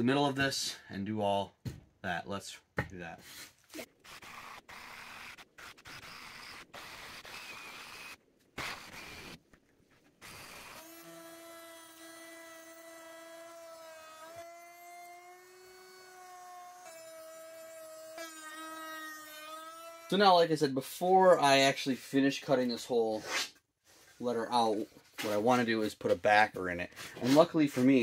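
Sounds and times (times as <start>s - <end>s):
jigsaw cutting wood: 3.8s - 9.4s, 10.2s - 20.1s
router whining: 4.0s - 9.4s.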